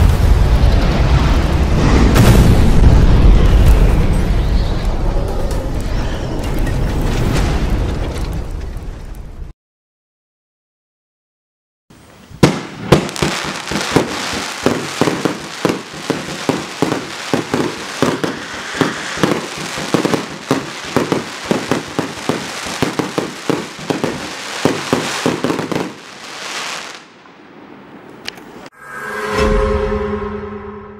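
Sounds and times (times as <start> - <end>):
fireworks shots and bursts: 0.0 - 4.5, 12.4 - 27.2
crackling stars hissing: 13.6 - 27.1.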